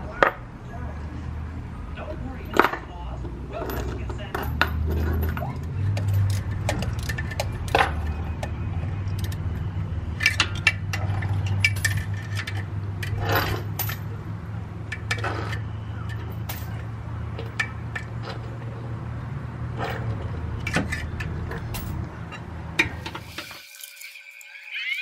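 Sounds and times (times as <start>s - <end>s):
metal bolts clinking: 3.6s - 14.2s, 14.9s - 18.9s, 19.7s - 23.6s.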